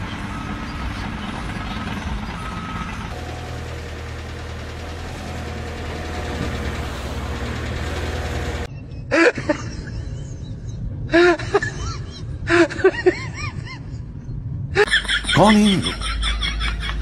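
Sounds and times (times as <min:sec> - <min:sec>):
excavator diesel engine running: 0:00.0 - 0:08.7.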